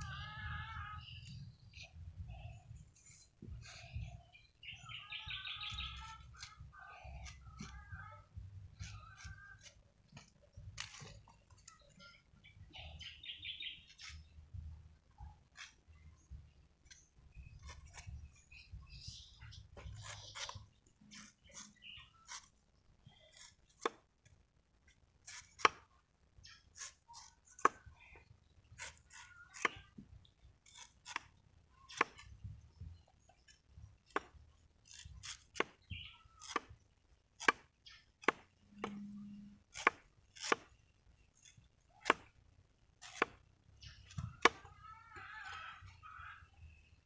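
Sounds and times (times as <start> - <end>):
knife chopping into wood: 43.0 - 43.4.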